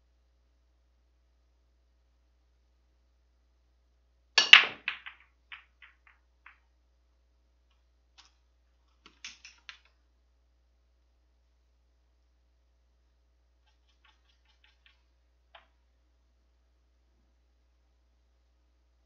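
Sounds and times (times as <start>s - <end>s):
cue ball break crack: 4.4s - 6.6s, 9.0s - 9.9s
billiard balls clicking: 4.4s - 6.7s, 7.7s - 10.0s, 13.7s - 15.9s.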